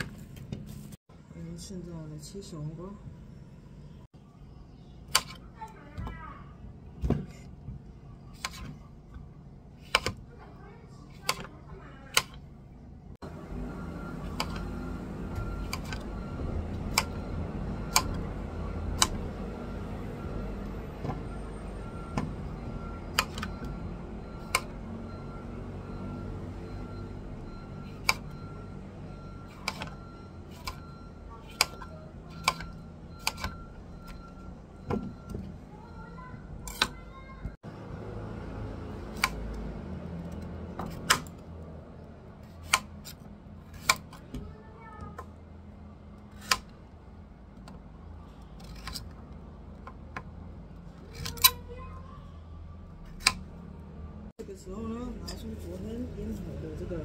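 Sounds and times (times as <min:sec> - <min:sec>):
knife chopping cucumbers: 0:08.3 - 0:08.8, 0:09.8 - 0:10.2, 0:11.1 - 0:11.5, 0:29.5 - 0:30.8, 0:31.4 - 0:33.6, 0:39.0 - 0:39.5, 0:42.5 - 0:44.3.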